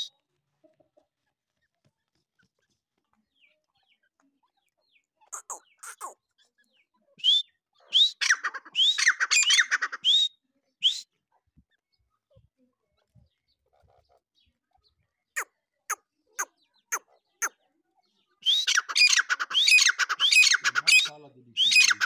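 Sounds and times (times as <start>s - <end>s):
francolins calling: 5.2s - 6.2s, 7.2s - 10.3s, 18.4s - 22.0s.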